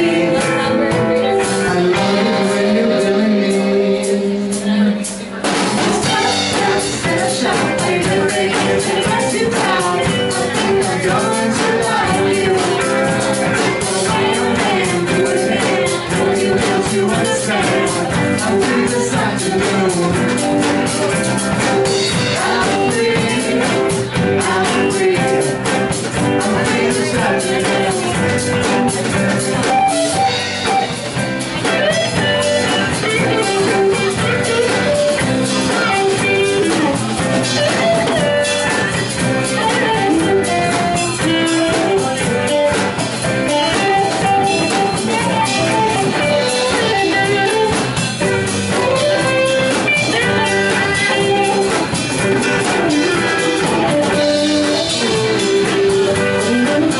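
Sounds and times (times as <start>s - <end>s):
bass guitar: 0.0s - 56.9s
drum kit: 0.0s - 56.9s
electric guitars: 0.0s - 56.9s.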